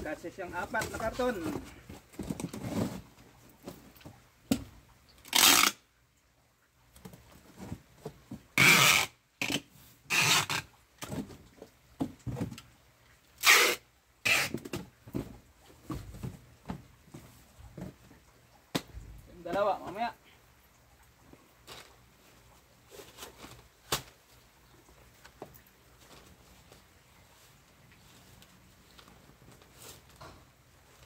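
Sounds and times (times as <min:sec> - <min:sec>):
packing tape ripped off roll: 0:05.2 - 0:05.8, 0:08.6 - 0:10.7, 0:13.4 - 0:14.8
cardboard knocks and rustles: 0:14.6 - 0:18.0.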